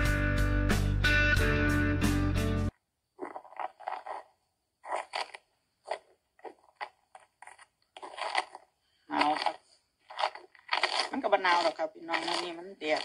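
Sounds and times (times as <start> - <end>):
background music: 0.0 - 2.7.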